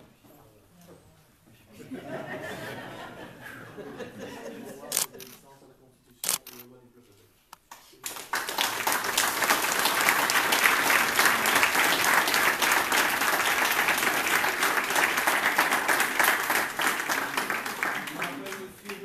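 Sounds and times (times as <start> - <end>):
crowd applause: 8.0 - 19.0.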